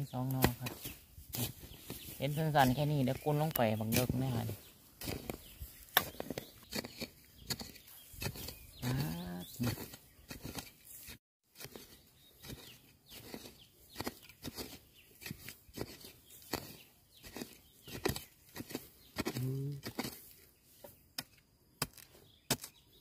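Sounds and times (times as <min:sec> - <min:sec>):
rustling bamboo litter: 0:00.0 - 0:07.0.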